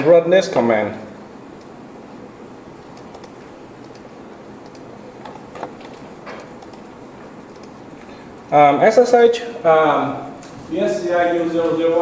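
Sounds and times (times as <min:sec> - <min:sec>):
mouse and keyboard clicks: 0:03.0 - 0:06.9, 0:07.5 - 0:07.8
room hiss: 0:06.1 - 0:12.0.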